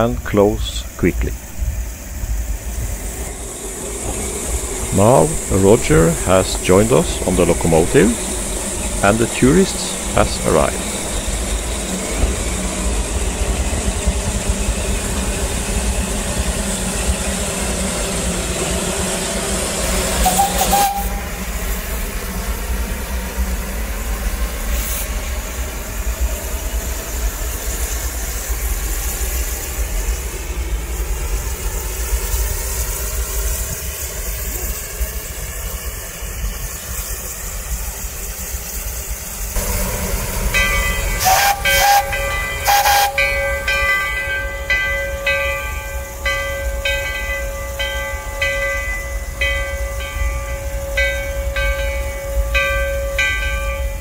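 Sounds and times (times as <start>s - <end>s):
steam hissing from locomotive: 0.0s - 54.0s
steam whistle: 20.1s - 21.5s, 40.5s - 43.8s.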